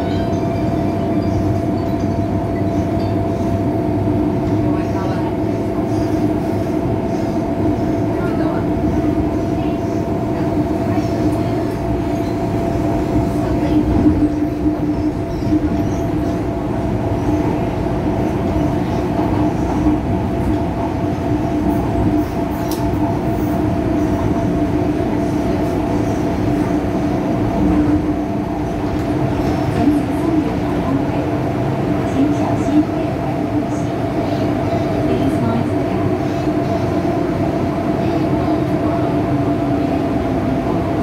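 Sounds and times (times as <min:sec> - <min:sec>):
train wheels rumbling on rail: 0:00.0 - 0:41.0.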